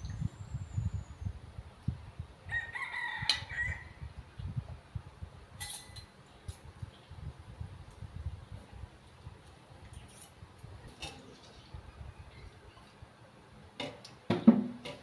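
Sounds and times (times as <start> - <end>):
rooster crowing: 2.5 - 4.0.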